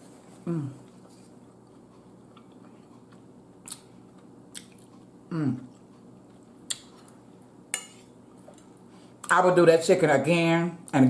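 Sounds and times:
person chewing food: 0:00.1 - 0:09.3
wet mouth clicks and smacks: 0:03.6 - 0:03.9.

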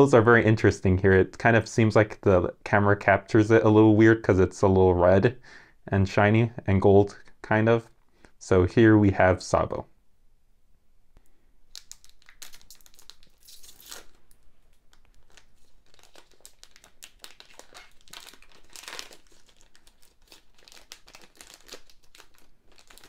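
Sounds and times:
foil wrapper tearing and crinkling: 0:11.7 - 0:23.0.

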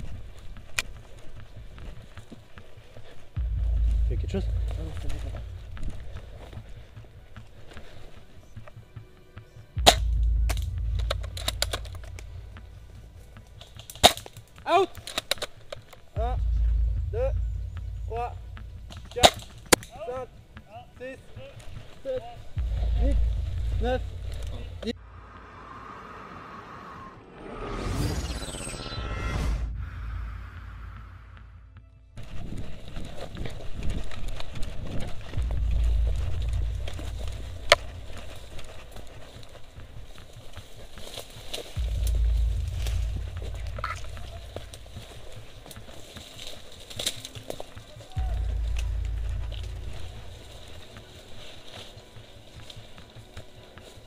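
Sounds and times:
deep boom: 0:03.4 - 0:06.8, 0:09.8 - 0:13.2, 0:16.2 - 0:19.7, 0:22.6 - 0:26.0, 0:27.4 - 0:32.0, 0:35.3 - 0:38.8, 0:41.8 - 0:45.1, 0:48.2 - 0:50.5
low rumble on microphone: 0:03.4 - 0:07.2, 0:09.8 - 0:13.6, 0:16.2 - 0:19.7, 0:22.4 - 0:39.5, 0:41.8 - 0:45.6, 0:48.1 - 0:51.0
twigs snapping and rustling: 0:09.8 - 0:16.2, 0:18.8 - 0:20.2, 0:32.2 - 0:54.0
footsteps crunching through dry leaves: 0:32.2 - 0:54.0.

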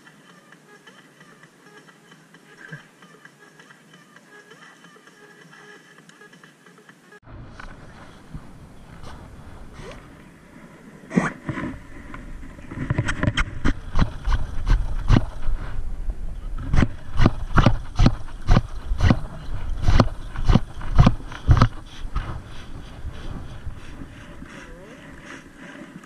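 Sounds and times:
footsteps walking: 0:07.5 - 0:10.3, 0:16.6 - 0:26.0
low steady rumble: 0:13.5 - 0:25.2.

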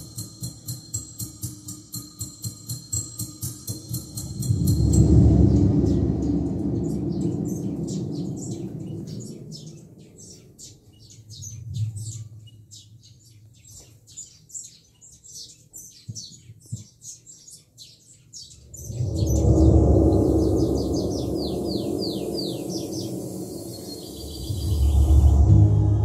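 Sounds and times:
low rumble: 0:04.3 - 0:12.2, 0:18.7 - 0:26.0
rapid high-pitched chirping: 0:18.5 - 0:25.4.

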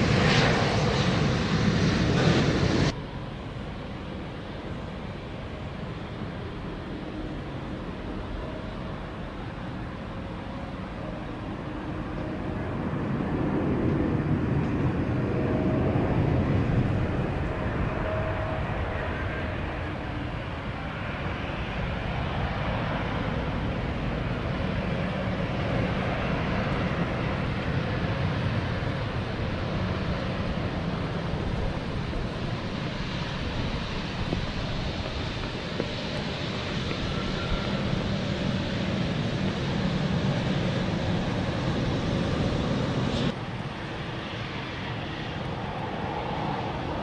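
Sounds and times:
jet engines rumbling: 0:00.0 - 0:47.0.

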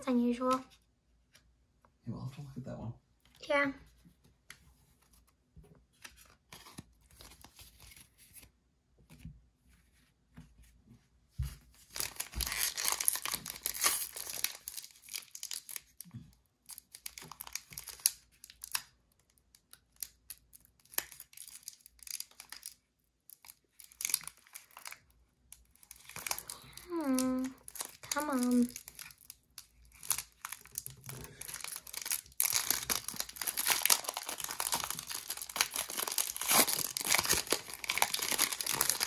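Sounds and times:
plastic wrapper tearing and crinkling: 0:11.8 - 0:39.0.

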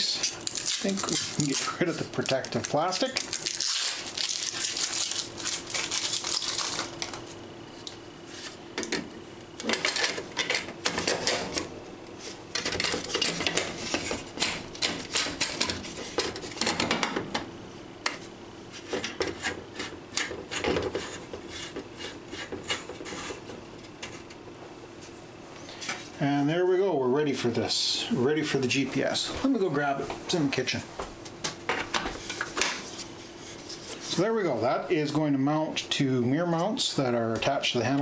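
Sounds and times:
plastic film crinkling: 0:00.3 - 0:07.4.

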